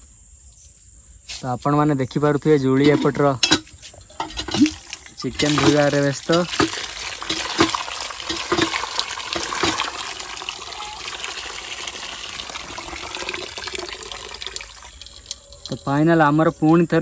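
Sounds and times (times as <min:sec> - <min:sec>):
water pouring into a steel bowl: 0:04.3 - 0:16.0.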